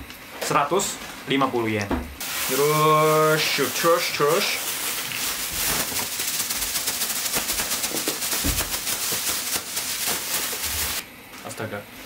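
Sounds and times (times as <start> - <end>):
packets dropping to the floor: 2.2 - 11.0
plastic bag crinkling: 2.2 - 11.0.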